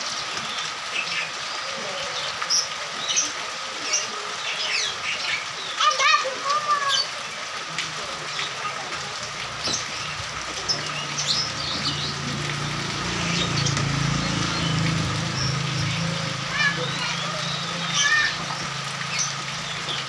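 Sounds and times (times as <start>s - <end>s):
rain on a wet road: 0.0s - 20.0s
small birds chirping: 0.0s - 20.0s
motorcycle passing: 9.4s - 20.0s.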